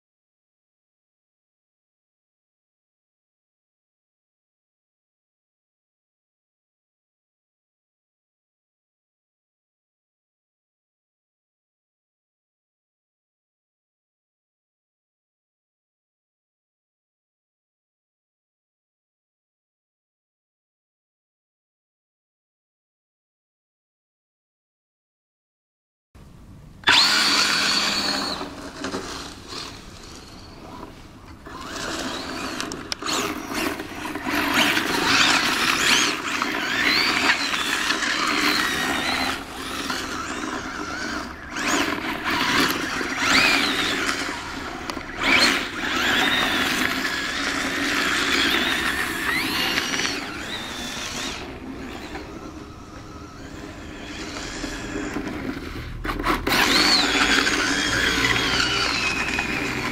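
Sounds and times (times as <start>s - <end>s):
toy car electric motor whining: 26.8s - 59.9s.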